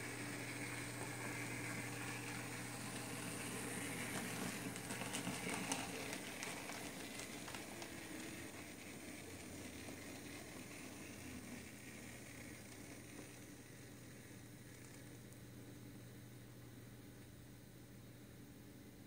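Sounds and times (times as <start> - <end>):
model train motor hum: 0.0 - 15.2.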